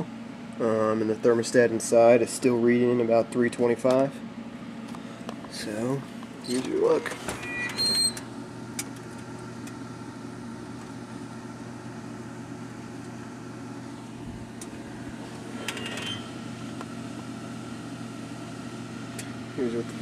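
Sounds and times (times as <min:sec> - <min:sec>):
oven fan humming: 0:00.0 - 0:20.0.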